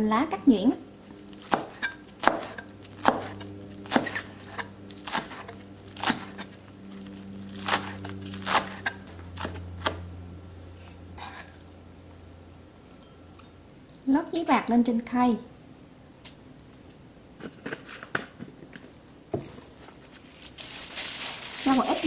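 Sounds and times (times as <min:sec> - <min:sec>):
knife chopping on cutting board: 0:01.4 - 0:06.5, 0:07.6 - 0:10.0.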